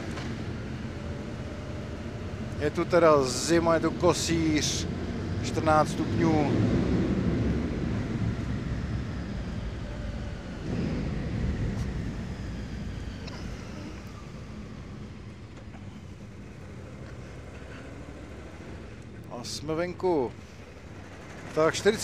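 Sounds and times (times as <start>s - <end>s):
motorcycle engine running: 19.8s - 22.0s.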